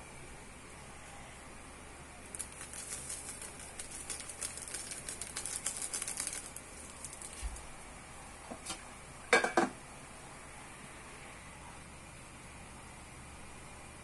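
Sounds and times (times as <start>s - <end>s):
seasoning ticking onto vegetables: 2.3s - 7.4s.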